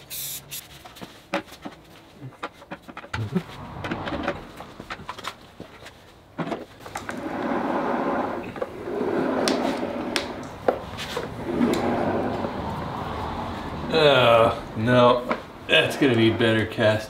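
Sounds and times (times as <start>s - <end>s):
casters grinding on concrete: 6.8s - 17.0s.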